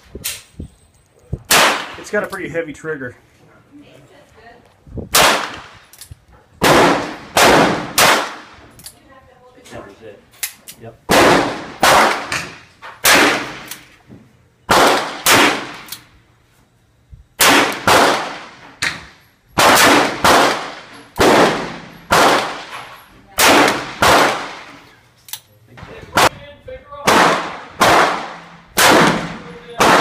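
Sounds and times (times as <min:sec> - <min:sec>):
handgun shots with echo: 0:27.1 - 0:30.0.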